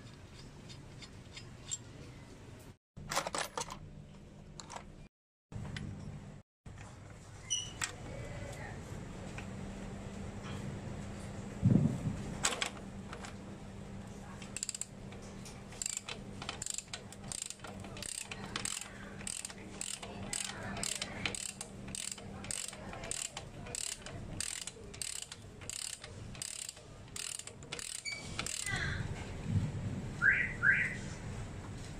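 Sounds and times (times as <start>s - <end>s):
ratchet wrench clicking: 14.6s - 14.9s, 15.8s - 28.8s.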